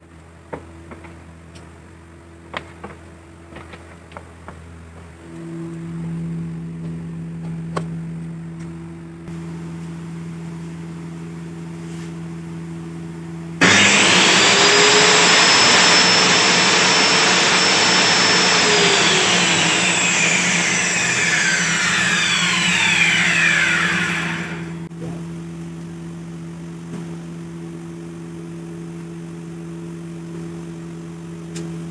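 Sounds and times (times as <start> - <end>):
circular saw whine: 13.6 - 24.9.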